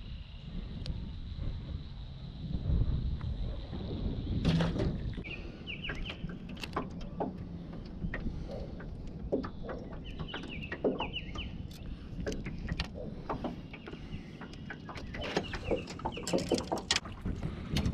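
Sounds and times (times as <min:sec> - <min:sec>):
bird chirping: 0:05.2 - 0:07.2, 0:09.5 - 0:12.6, 0:13.3 - 0:16.8
small clicks and knocks: 0:05.9 - 0:17.1.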